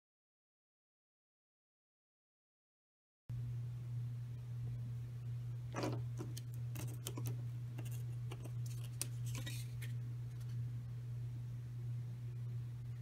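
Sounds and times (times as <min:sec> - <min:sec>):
low hum: 0:03.3 - 0:13.0.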